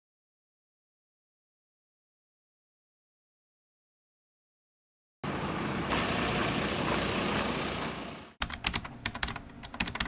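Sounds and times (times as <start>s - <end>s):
sharp irregular clicks: 8.4s - 10.0s.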